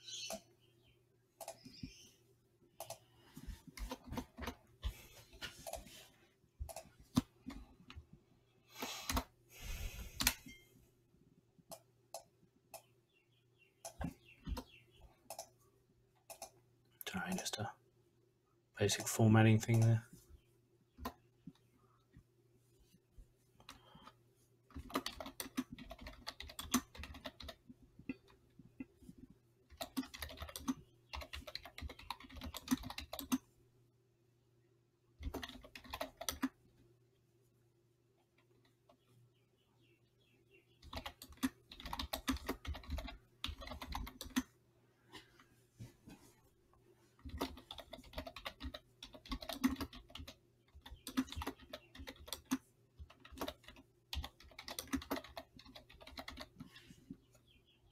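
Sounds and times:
keyboard typing clicks: 2.8s - 3.1s, 15.3s - 15.6s, 16.2s - 16.6s, 24.7s - 28.9s, 29.7s - 33.4s, 47.3s - 56.6s.

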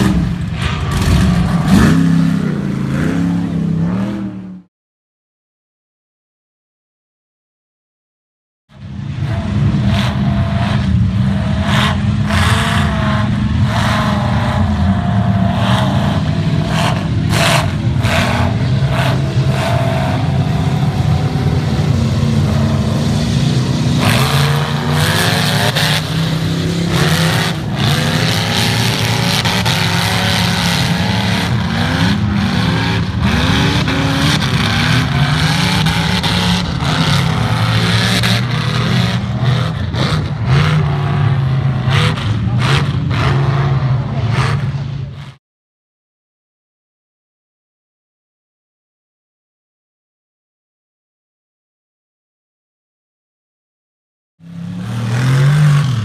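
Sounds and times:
truck engine revving: 0.0s - 4.7s, 8.7s - 45.4s, 54.4s - 56.0s.

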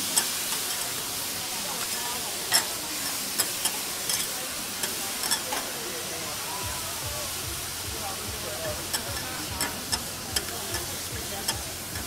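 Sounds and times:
lobster sizzling on griddle: 0.0s - 12.0s
metal spatulas scraping griddle: 1.8s - 5.8s, 8.6s - 12.0s.

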